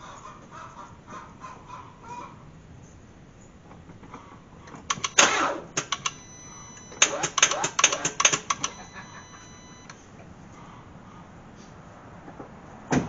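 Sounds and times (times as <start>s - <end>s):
starter solenoid clicking: 4.7s - 10.0s
thin steady tone: 6.0s - 7.4s, 8.4s - 10.0s.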